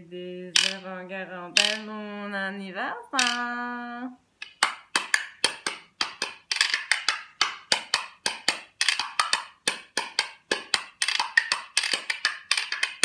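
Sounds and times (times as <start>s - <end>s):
wooden spoons clacking: 0.6s - 0.9s, 1.6s - 1.9s, 3.2s - 3.6s, 4.4s - 13.0s.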